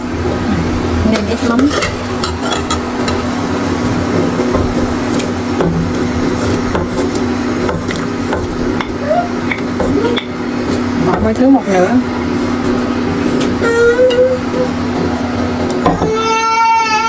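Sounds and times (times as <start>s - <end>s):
steady hum: 0.0s - 17.0s.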